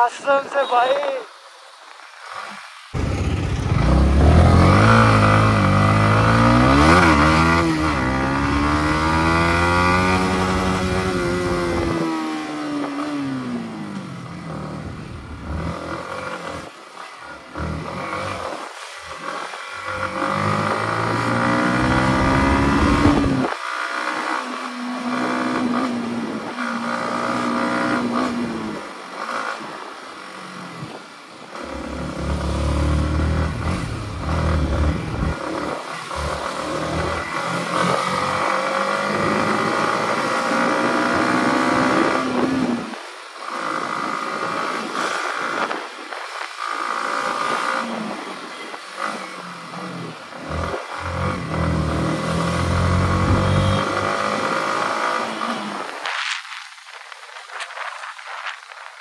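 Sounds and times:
motorcycle engine running: 0:03.0 - 0:12.1.

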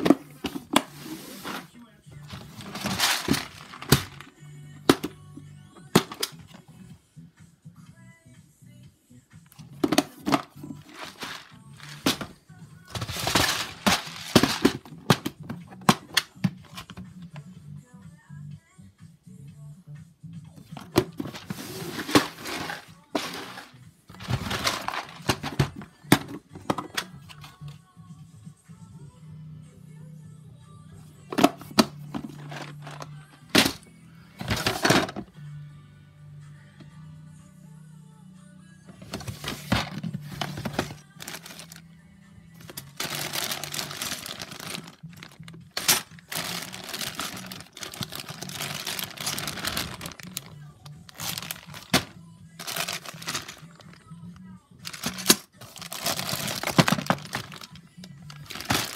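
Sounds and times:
plastic cases scraping and sliding: 0:00.0 - 0:04.2, 0:09.9 - 0:12.3, 0:12.9 - 0:16.9, 0:20.8 - 0:25.8, 0:39.0 - 0:41.8, 0:42.6 - 0:54.0, 0:54.9 - 0:57.7
plastic bags crinkling: 0:02.3 - 0:04.3, 0:10.6 - 0:12.3, 0:12.9 - 0:15.2, 0:20.8 - 0:25.8, 0:39.2 - 0:41.8, 0:42.6 - 0:54.0, 0:54.8 - 0:58.9.

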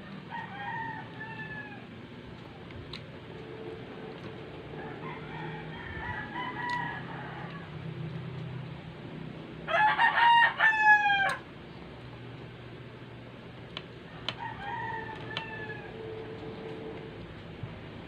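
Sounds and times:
rooster crowing: 0:00.1 - 0:01.9, 0:04.6 - 0:07.9, 0:09.6 - 0:11.4, 0:14.1 - 0:17.0.

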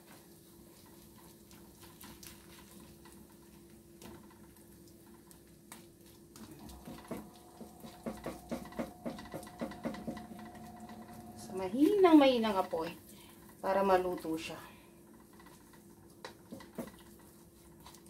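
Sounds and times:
faint steady hum: 0:04.8 - 0:18.0.

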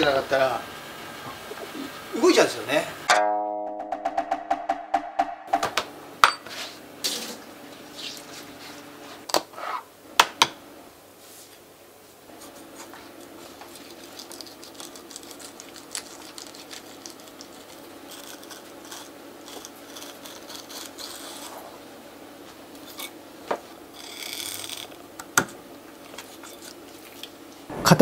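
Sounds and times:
knife slicing and scraping fish: 0:13.8 - 0:21.6.

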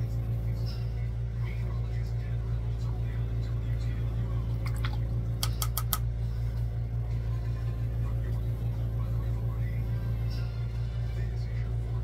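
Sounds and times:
low machine hum: 0:00.0 - 0:12.0
sharp clicks: 0:05.4 - 0:06.0.

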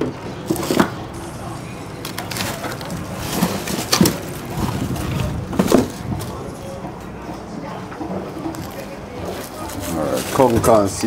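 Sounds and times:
frozen packages knocking and scraping: 0:02.0 - 0:06.6, 0:08.4 - 0:11.0.

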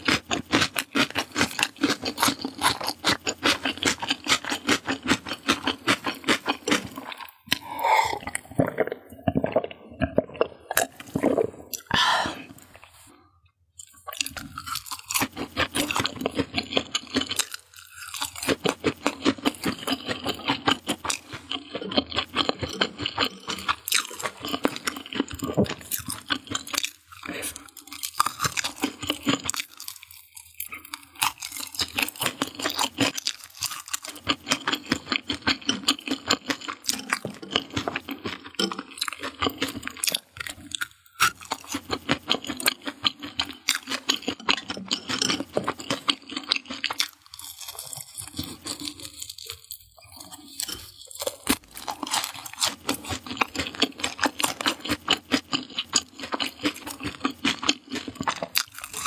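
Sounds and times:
crunching and chewing fried food: 0:00.0 - 0:59.0.

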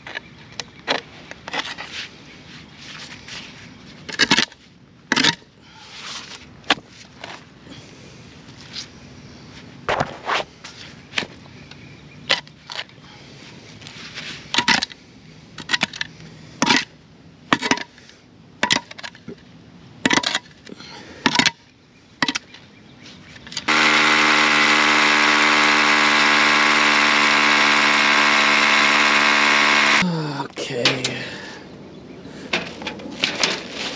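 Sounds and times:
hammer drill drilling concrete: 0:23.7 - 0:30.0.

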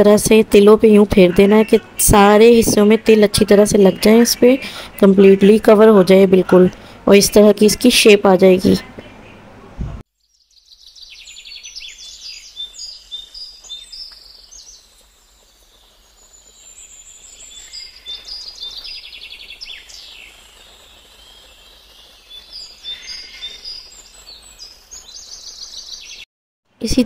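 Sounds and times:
small birds chirping and trilling: 0:07.3 - 0:09.5, 0:10.2 - 0:26.2.

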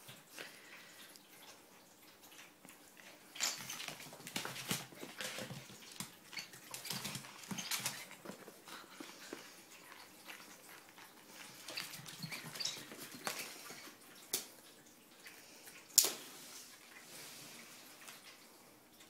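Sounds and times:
ferret scuffling and tapping on floor: 0:03.3 - 0:14.5.

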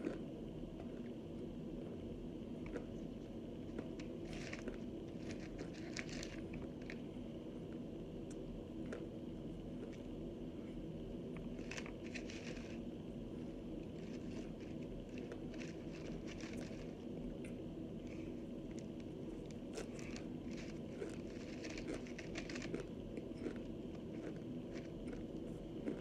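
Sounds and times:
crunching and chewing: 0:00.0 - 0:01.2, 0:01.8 - 0:07.1, 0:07.7 - 0:10.1, 0:11.3 - 0:26.0.

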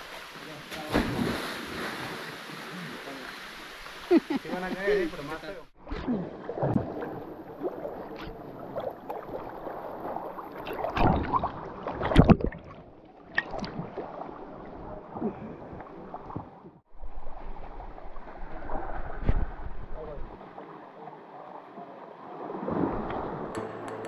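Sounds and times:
water splashing from wading: 0:00.0 - 0:04.5, 0:05.8 - 0:16.6.

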